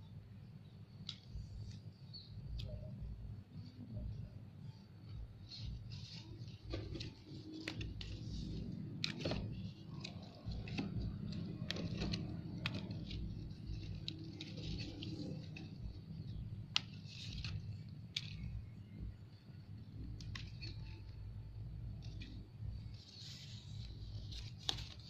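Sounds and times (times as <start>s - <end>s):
steady low rumble: 0.0s - 25.0s
small clicks of stems: 0.9s - 2.9s, 5.4s - 19.0s, 19.8s - 21.2s, 21.9s - 25.0s
leaves rustling: 5.4s - 18.8s, 22.0s - 25.0s.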